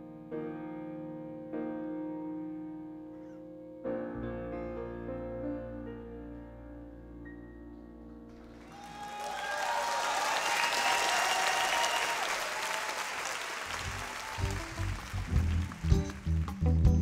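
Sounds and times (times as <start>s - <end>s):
audience applauding: 8.4s - 16.6s
person cheering: 8.6s - 13.2s
band bass and drums: 13.9s - 17.0s.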